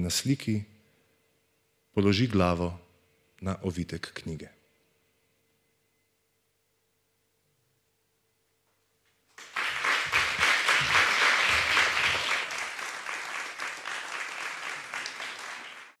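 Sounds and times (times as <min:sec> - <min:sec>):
audience applauding: 0:09.3 - 0:16.0.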